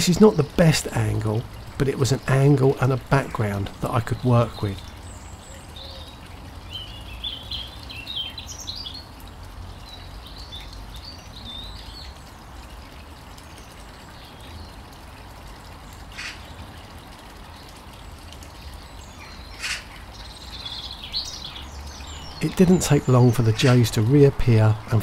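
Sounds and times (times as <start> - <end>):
birds chirping and twittering: 0.0 - 14.9, 15.8 - 25.0.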